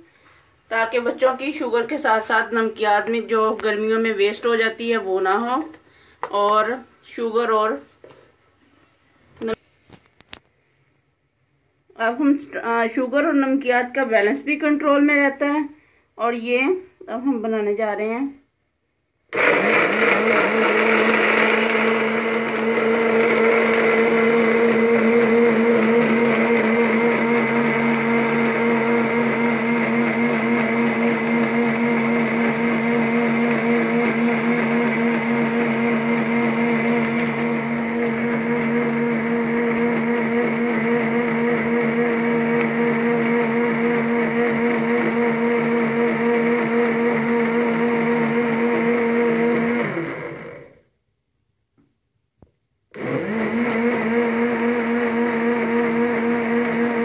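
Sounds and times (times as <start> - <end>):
blender motor running: 19.3 - 50.8, 52.9 - 57.0.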